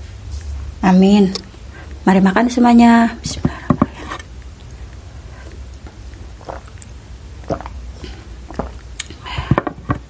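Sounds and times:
low steady hum: 0.0s - 10.0s
drink swallowing gulps: 3.8s - 10.0s.

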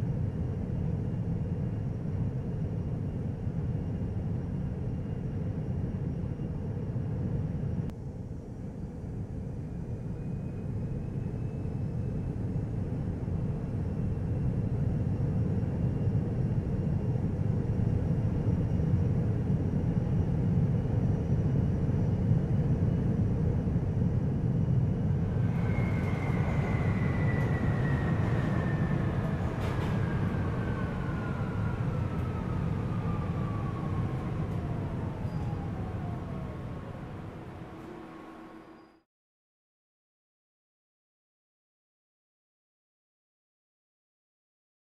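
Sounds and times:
monorail train rumbling: 21.7s - 39.0s.

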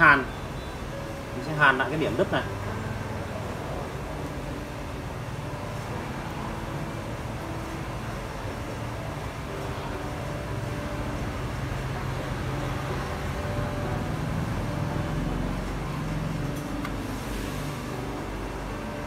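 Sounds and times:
engine drones: 0.0s - 19.0s
road traffic rumble: 0.0s - 19.0s.

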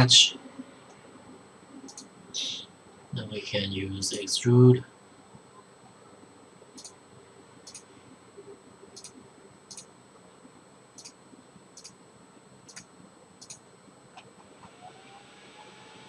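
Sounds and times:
computer mouse clicks: 1.8s - 2.1s, 6.8s - 7.0s, 7.6s - 7.9s, 9.0s - 9.9s, 11.0s - 11.2s, 11.8s - 12.0s, 12.7s - 13.6s.

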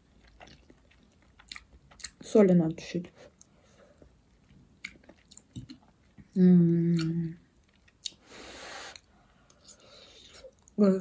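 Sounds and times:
person humming mmm: 6.3s - 7.4s.

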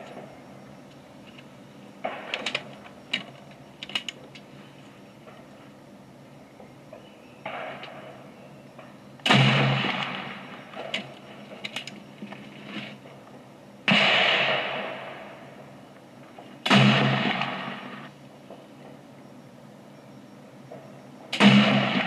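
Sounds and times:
gunshots: 2.0s - 2.8s, 7.4s - 11.6s, 13.9s - 15.8s, 16.4s - 19.0s, 21.3s - 22.0s.

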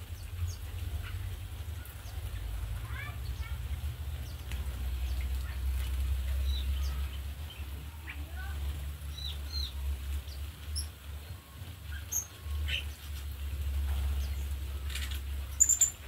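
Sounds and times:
birds chirping and whistling: 9.1s - 16.0s.

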